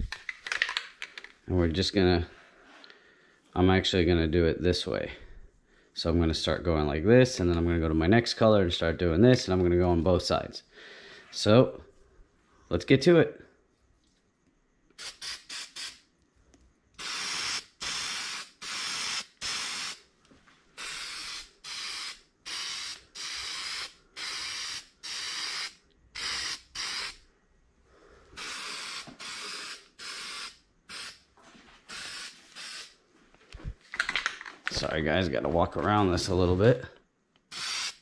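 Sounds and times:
spray-paint can hissing: 15.0s - 16.1s, 17.0s - 20.0s, 20.8s - 27.2s, 28.4s - 31.2s, 31.8s - 33.0s, 37.5s - 38.0s.

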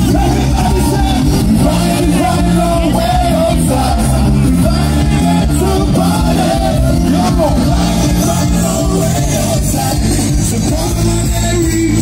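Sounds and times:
heavy bass line: 0.0s - 12.0s
man singing: 0.0s - 12.0s.

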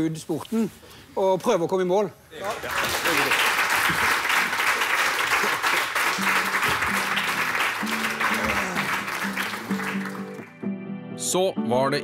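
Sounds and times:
audience applauding: 2.4s - 10.6s
background music: 5.8s - 12.0s.

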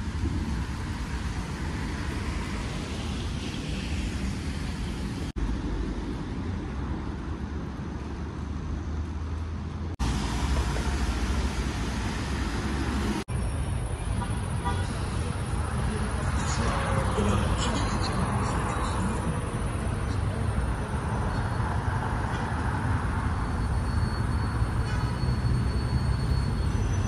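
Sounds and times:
traffic noise: 0.0s - 27.0s.

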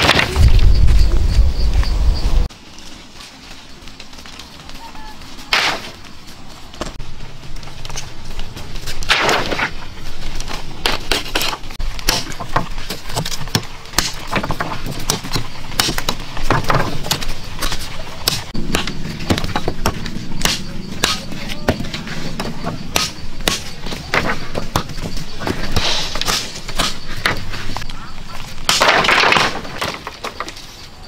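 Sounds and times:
machete chopping wooden sticks: 5.5s - 6.0s, 9.0s - 9.8s, 10.4s - 27.8s, 28.5s - 30.6s
clattering impact: 28.6s - 30.7s.

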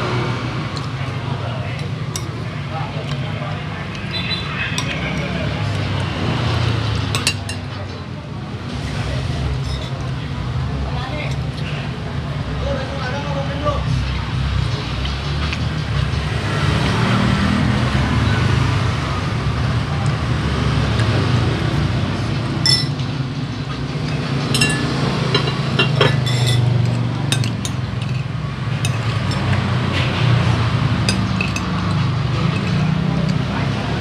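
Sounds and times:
low rumble of street traffic: 0.0s - 34.0s
cutlery clinking on ceramic plate: 22.6s - 23.0s, 24.1s - 29.6s.

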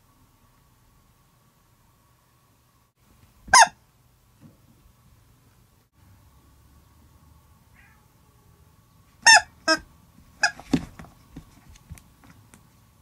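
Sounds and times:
high toy squeaks: 9.2s - 9.8s, 10.4s - 10.6s
thumps and rustling on mat: 10.5s - 12.0s.

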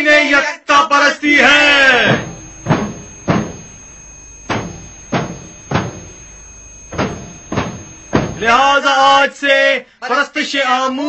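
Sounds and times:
heavy barrel drum beats: 2.1s - 3.7s, 6.9s - 8.4s.

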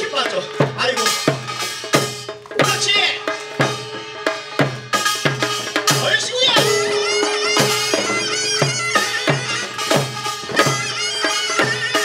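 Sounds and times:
percussion band playing barrel drums: 0.0s - 12.0s
wavering high melody: 6.2s - 12.0s.

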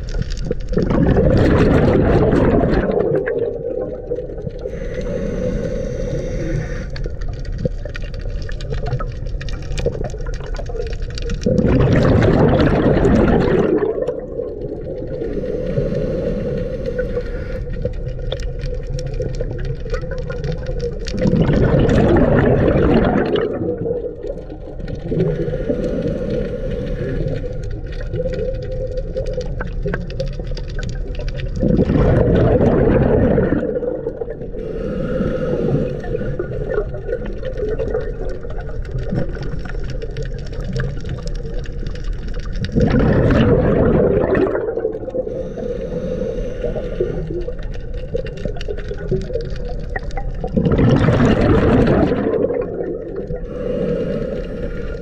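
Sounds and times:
exhaled bubbles bursting: 0.0s - 55.0s
underwater drone: 0.0s - 55.0s
regulator hissing inhalations: 4.6s - 7.1s, 15.2s - 17.7s, 25.3s - 27.6s, 34.5s - 36.7s, 45.2s - 47.5s, 53.4s - 55.0s.

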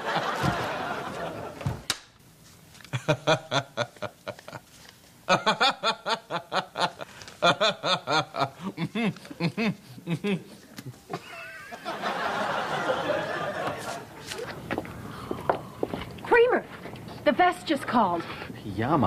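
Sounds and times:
man laughing hard: 2.9s - 4.7s, 5.3s - 13.9s.

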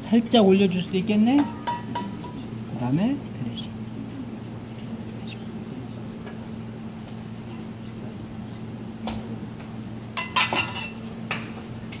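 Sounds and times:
steady low hum: 0.0s - 12.0s
metal spoon clinking against dishes: 1.3s - 2.5s, 10.2s - 11.0s.

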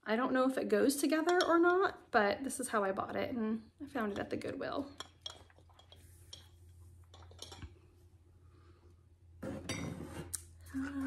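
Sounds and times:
ceramic and metal objects clinking: 4.9s - 7.7s.

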